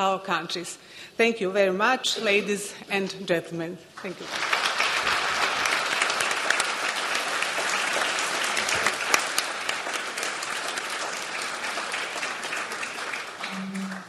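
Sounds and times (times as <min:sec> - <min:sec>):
audience applauding: 0:04.0 - 0:14.0.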